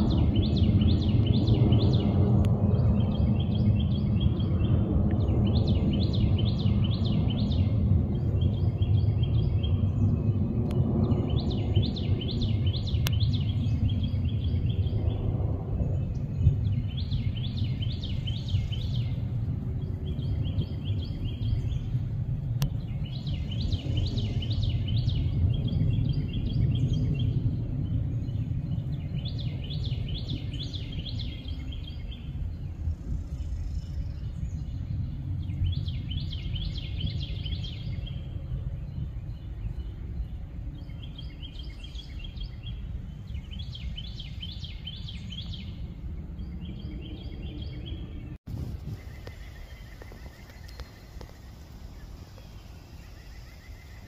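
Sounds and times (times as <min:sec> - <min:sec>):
low rumble: 0:00.0 - 0:54.0
songbird trilling: 0:11.0 - 0:15.2, 0:16.0 - 0:21.9, 0:22.8 - 0:27.4, 0:38.9 - 0:54.0.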